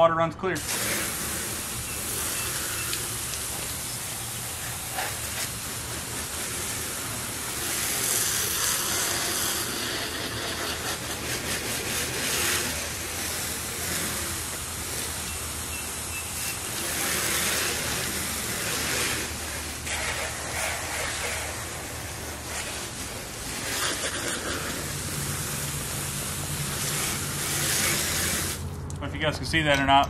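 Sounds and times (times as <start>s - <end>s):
hose nozzle spraying water: 0.6s - 28.8s.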